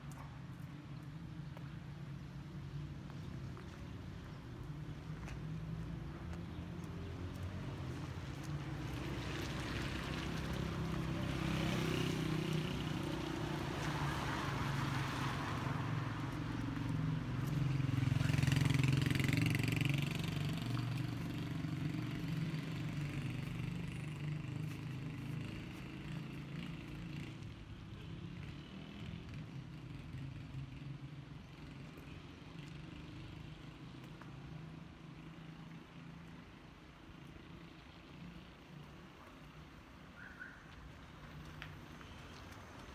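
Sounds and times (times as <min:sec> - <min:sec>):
tyres hissing on wet street: 0:07.4 - 0:20.1.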